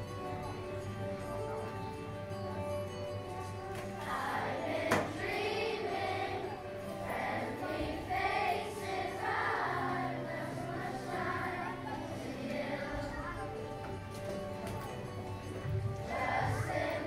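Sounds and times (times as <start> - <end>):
instrumental accompaniment: 0.0 - 11.6, 12.2 - 17.0
children's choir singing: 3.7 - 14.2, 15.4 - 17.0.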